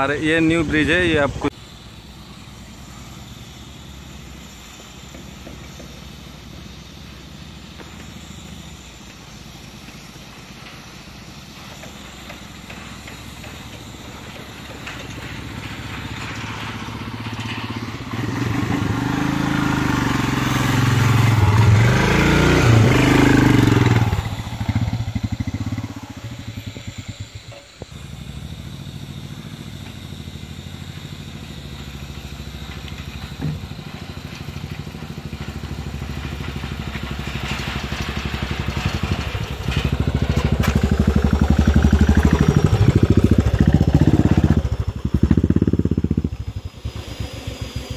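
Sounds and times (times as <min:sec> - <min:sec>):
motorcycle pulling away: 0:02.4 - 0:47.9
motorcycle engine passing: 0:14.8 - 0:32.6, 0:34.0 - 0:47.9.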